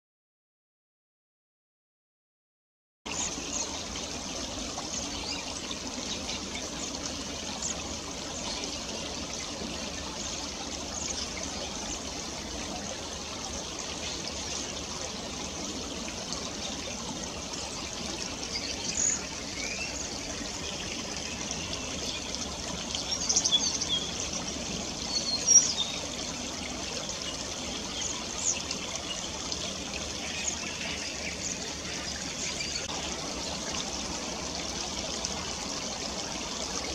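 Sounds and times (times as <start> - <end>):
stream trickling over rocks: 3.1 - 36.9.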